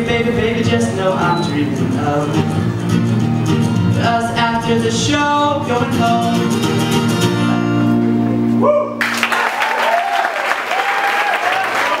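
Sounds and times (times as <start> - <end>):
audience cheers and whoops: 8.6 - 12.0
audience applause: 9.0 - 12.0.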